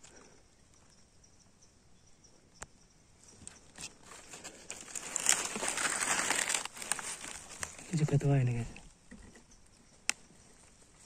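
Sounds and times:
faint insect chirping: 0.0 - 11.0
close rustling crinkling: 3.6 - 8.6.

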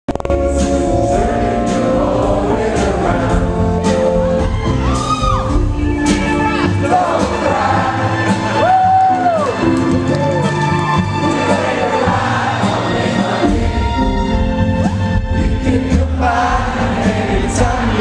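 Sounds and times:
live rock band playing: 0.1 - 18.0
audience cheering and whooping: 4.3 - 5.8, 7.8 - 11.4.

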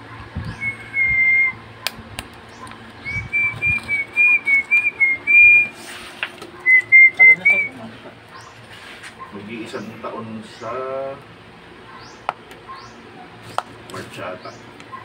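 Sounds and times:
person whistling a tune: 0.6 - 1.6, 3.1 - 5.7, 6.7 - 7.8.

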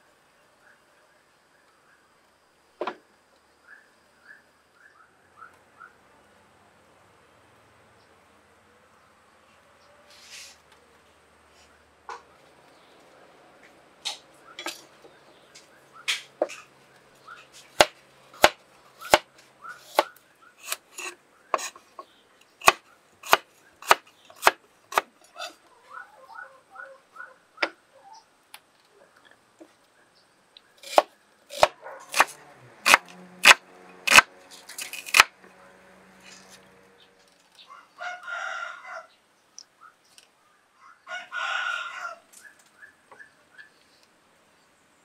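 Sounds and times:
knife chopping on wooden board: 17.8 - 19.3, 19.9 - 21.8, 22.6 - 25.1, 30.8 - 35.3
rooster crowing: 37.6 - 39.2, 40.8 - 42.3.

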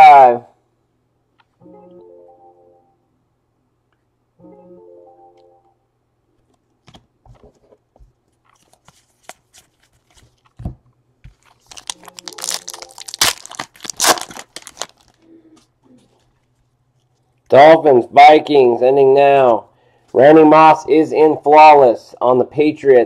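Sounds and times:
cards being handled: 6.4 - 15.2
card pack wrapper crinkling: 11.4 - 15.2.

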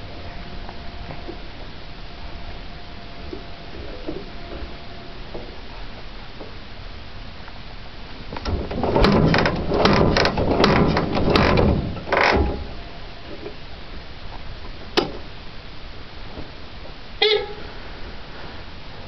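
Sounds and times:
motorcycle engine kick-starting: 8.4 - 12.8.

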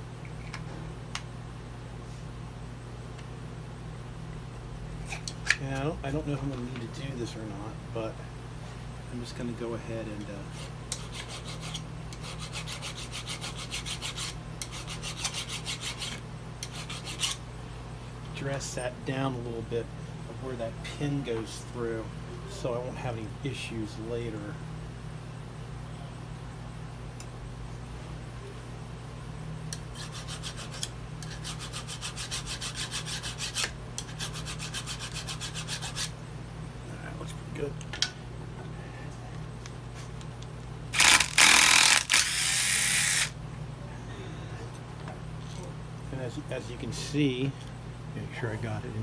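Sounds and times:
file scraping on steel: 10.5 - 17.4, 29.9 - 36.1.

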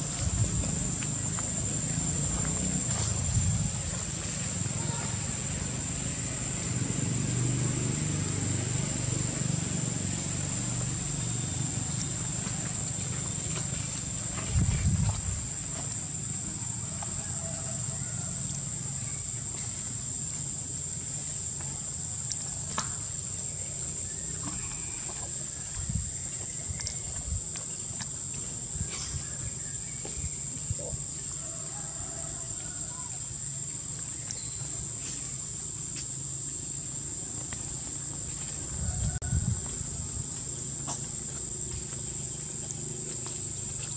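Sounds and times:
high-pitched insect drone: 32.7 - 43.9.

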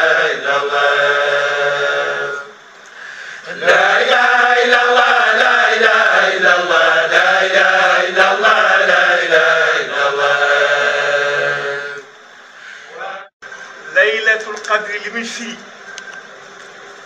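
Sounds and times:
men chanting in unison: 3.4 - 12.0.

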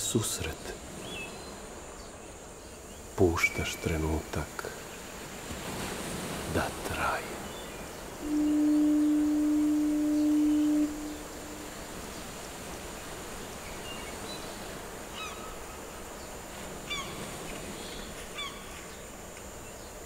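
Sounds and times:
outdoor ambience with high hiss: 0.0 - 20.0
downward-bending bird calls: 6.5 - 15.7
sustained low tone: 8.2 - 11.9.

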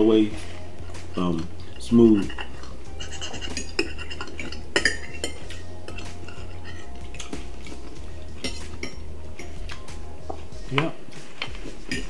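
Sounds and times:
steady low hum: 0.0 - 12.0
cutlery clinking on plates: 2.2 - 7.8, 8.4 - 9.9, 10.8 - 12.0.

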